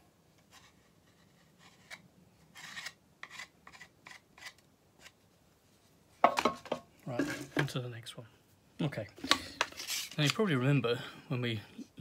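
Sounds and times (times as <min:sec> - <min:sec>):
screwdriver scraping wood: 0:01.1 - 0:05.2.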